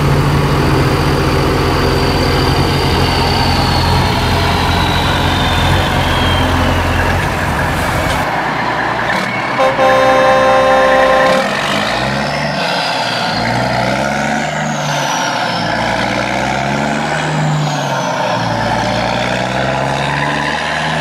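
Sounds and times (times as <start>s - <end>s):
high whine falling in pitch: 0.0s - 8.2s
truck engine running: 0.0s - 19.8s
truck horn: 9.6s - 12.1s.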